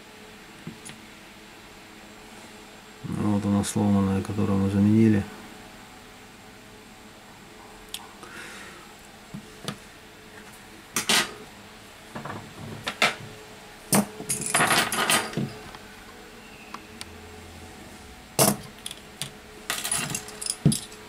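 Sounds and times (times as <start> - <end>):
metal parts clicking and clinking: 13.9 - 15.6, 18.4 - 21.0.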